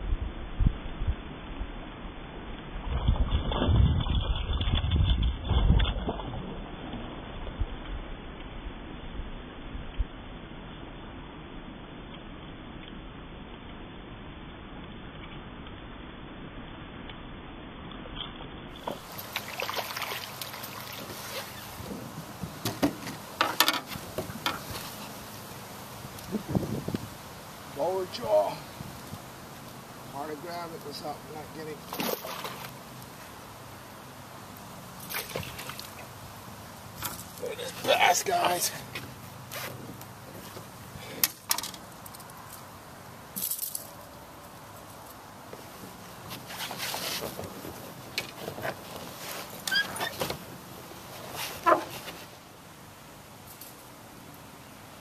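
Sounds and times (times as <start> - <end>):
fish splashing at water surface: 18.8 - 21.9, 31.8 - 32.8, 34.8 - 36.2.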